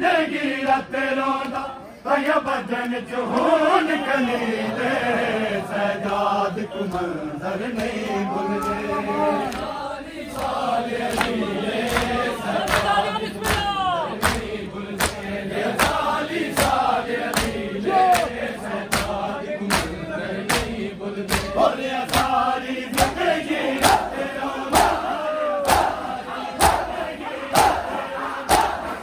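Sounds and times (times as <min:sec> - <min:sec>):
crowd chanting: 0:00.0 - 0:29.0
crowd chest beating slaps: 0:10.4 - 0:29.0.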